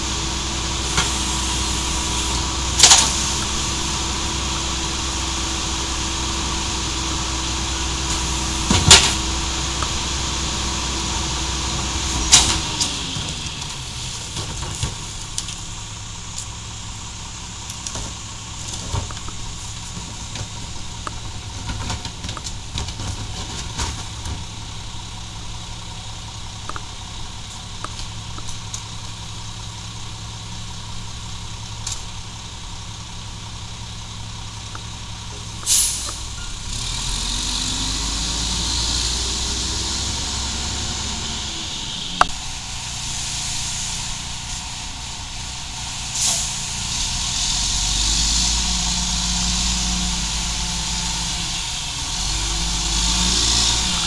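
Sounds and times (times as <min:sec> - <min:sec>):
garbage truck engine running: 0:00.0 - 0:54.0
trash carts banging against hopper: 0:00.8 - 0:04.0, 0:07.9 - 0:15.6, 0:17.7 - 0:24.7.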